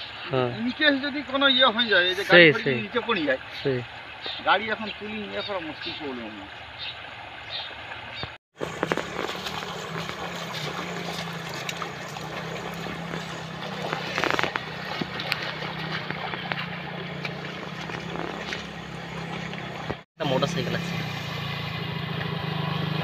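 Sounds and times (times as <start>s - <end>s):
water splashing: 1.0s - 23.0s
motorcycle engine running: 8.6s - 23.0s.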